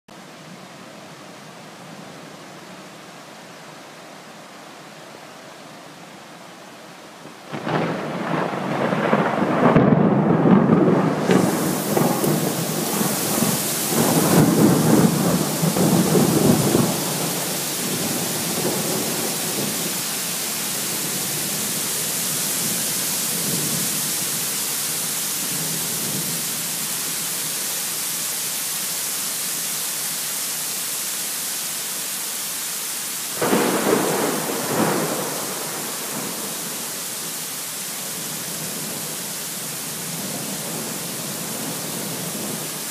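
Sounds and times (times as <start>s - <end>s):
heavy rain pouring: 0.2s - 42.9s
thunderclap: 7.5s - 19.8s, 33.4s - 36.5s
thunder rumbling: 7.5s - 23.9s, 33.4s - 36.8s.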